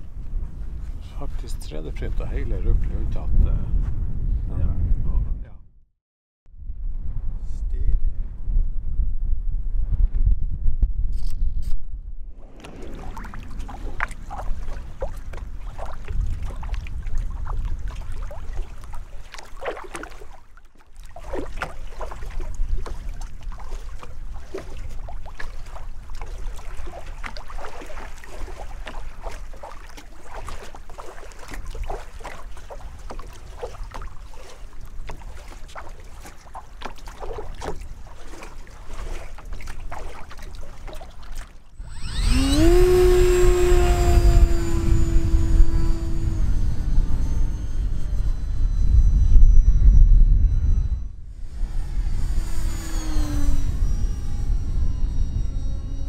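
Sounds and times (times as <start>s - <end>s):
wind buffeting microphone: 0.0s - 5.6s, 6.6s - 19.8s, 41.8s - 56.0s
low rumble: 6.5s - 18.9s, 42.8s - 52.0s
small waves lapping and splashing: 12.4s - 46.4s.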